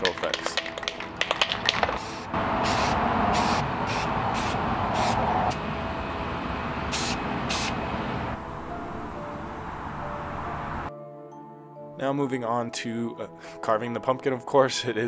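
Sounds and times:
short hissing bursts: 0:02.0 - 0:05.3, 0:06.9 - 0:07.8.

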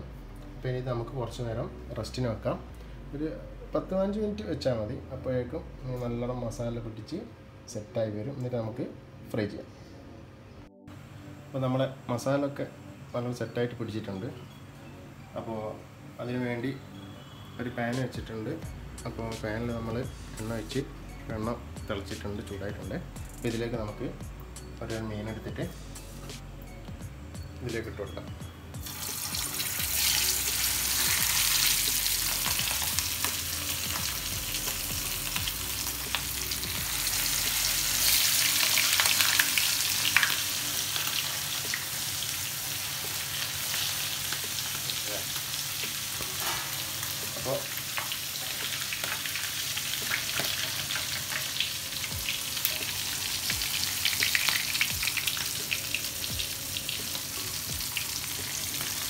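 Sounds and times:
fish sizzling in hot oil: 0:28.8 - 0:59.0.

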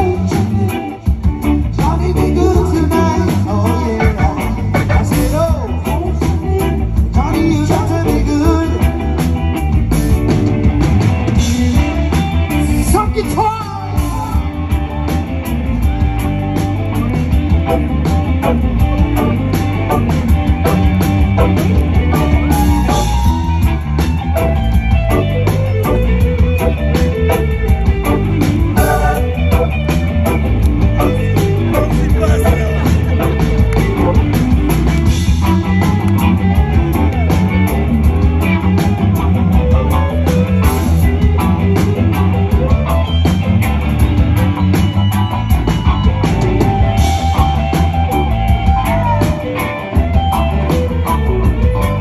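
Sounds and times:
person singing: 0:00.0 - 0:09.2, 0:31.0 - 0:33.7
rock and roll band playing: 0:00.0 - 0:52.0.

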